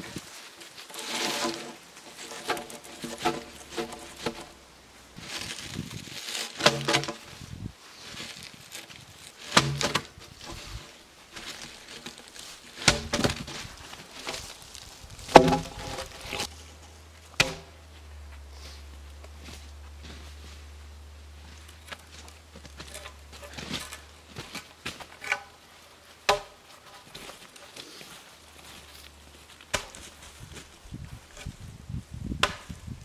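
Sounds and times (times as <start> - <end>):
logs knocking together: 0.8 - 4.6, 6.3 - 7.3, 8.8 - 16.6, 17.2 - 17.8, 26.3 - 27.3.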